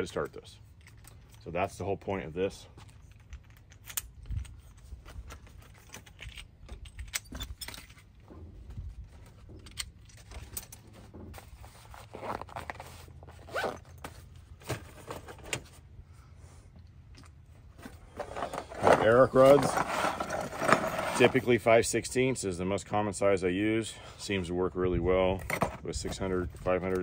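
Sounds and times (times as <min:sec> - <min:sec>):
gear clinking and rattling: 0:00.6 - 0:01.5, 0:02.8 - 0:11.5.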